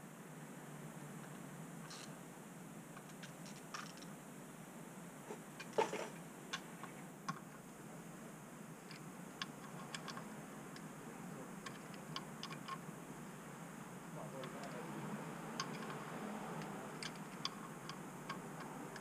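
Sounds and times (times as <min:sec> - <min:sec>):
tools clicking on clutch parts: 0:15.5 - 0:19.0.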